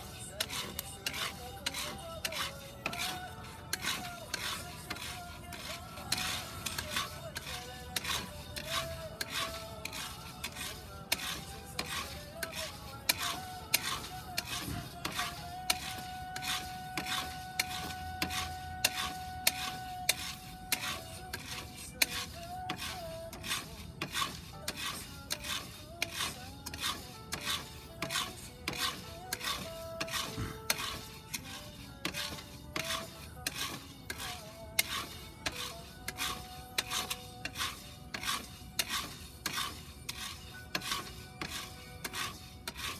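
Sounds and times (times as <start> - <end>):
wooden spoon stirring coffee beans: 0.0 - 42.9.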